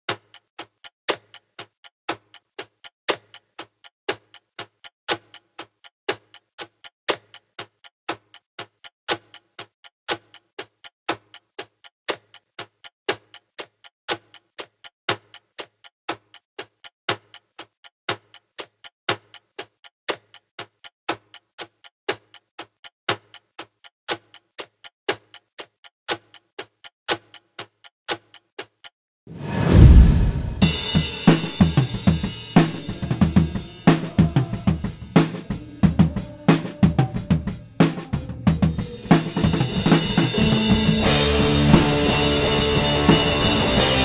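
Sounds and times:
clock-like ticking: 0:00.1 - 0:29.8, 0:30.6 - 0:44.0
loud low boom: 0:29.4 - 0:30.9.

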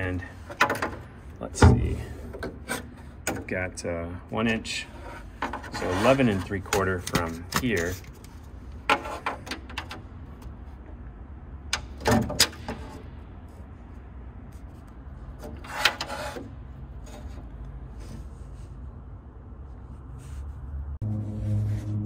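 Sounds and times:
scraping rustle: 0:04.4 - 0:09.6, 0:14.5 - 0:19.0.

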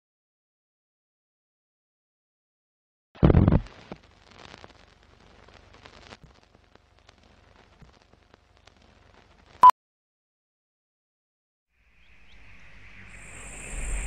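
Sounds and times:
film crackle and pops: 0:03.2 - 0:09.6.

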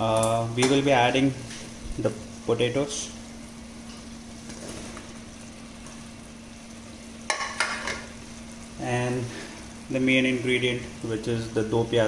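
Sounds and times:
food sizzling in a pot: 0:00.0 - 0:12.0.

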